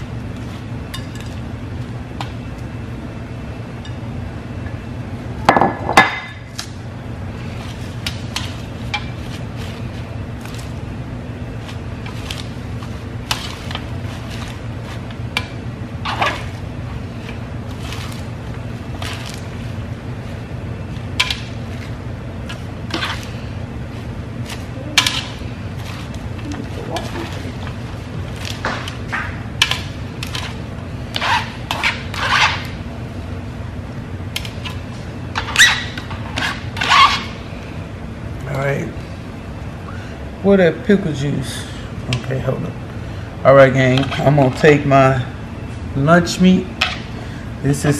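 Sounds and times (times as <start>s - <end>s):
steady low hum: 0.0s - 47.9s
salad leaves rustling on metal tray: 7.4s - 10.9s, 11.5s - 15.3s, 16.1s - 29.1s.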